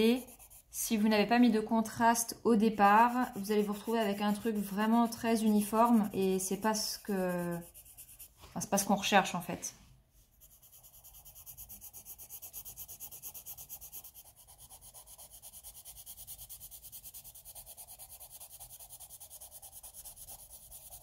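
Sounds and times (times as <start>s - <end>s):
pencil rubbing on paper: 0.0s - 1.1s, 2.8s - 8.9s, 10.2s - 21.0s.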